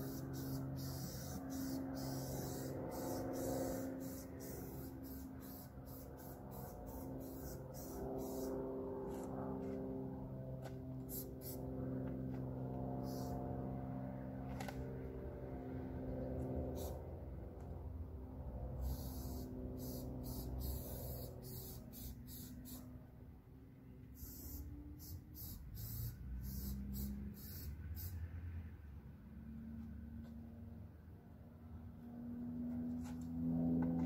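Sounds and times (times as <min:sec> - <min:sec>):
spray paint can hissing: 0:00.0 - 0:08.5, 0:11.1 - 0:11.6, 0:13.0 - 0:13.4, 0:16.8 - 0:17.0, 0:18.8 - 0:22.8, 0:24.2 - 0:28.2
low hum of held tones: 0:00.0 - 0:34.0.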